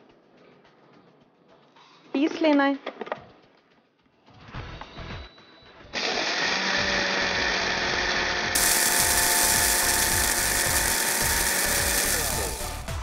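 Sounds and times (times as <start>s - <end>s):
electric spice grinder running: 6.0s - 13.0s.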